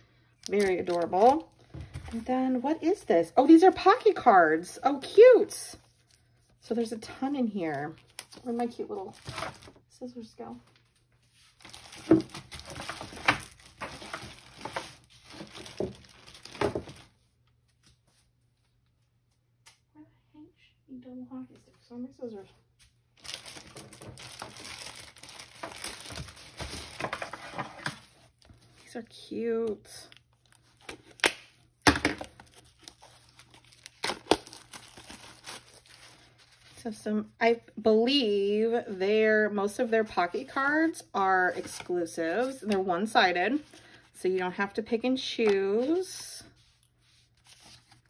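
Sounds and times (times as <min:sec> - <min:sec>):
packaging rustling: 0:00.4 - 0:02.2, 0:08.0 - 0:09.8, 0:10.7 - 0:17.2, 0:23.2 - 0:28.9, 0:30.1 - 0:36.8, 0:46.8 - 0:48.0.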